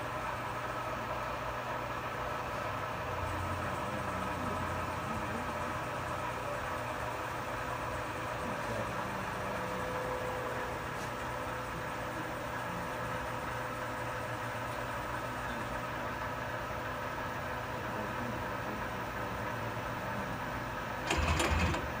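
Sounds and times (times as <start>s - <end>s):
lathe humming: 0.0s - 22.0s
mechanical clatter: 21.0s - 22.0s.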